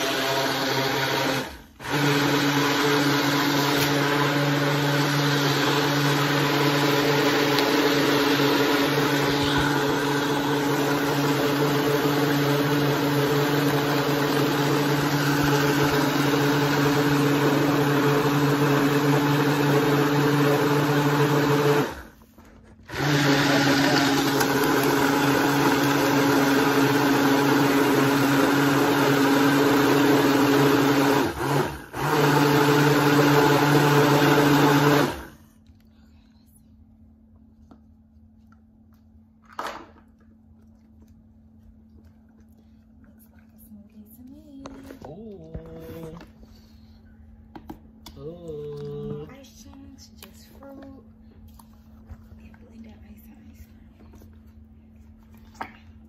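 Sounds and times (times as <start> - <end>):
blender motor running: 0.0 - 22.2, 22.9 - 35.4.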